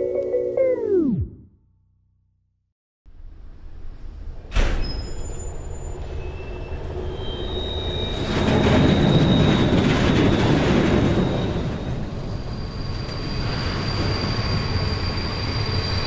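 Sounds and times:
wheels squealing on rails: 0:04.8 - 0:16.0
train running rumble: 0:08.1 - 0:16.0.

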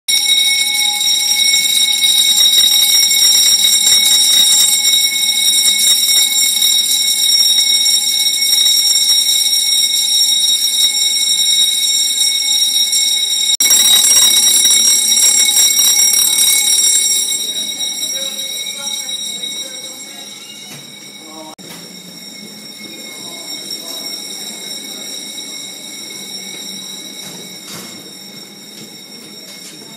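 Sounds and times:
fire alarm continuous high tone: 0:00.1 - 0:29.9.

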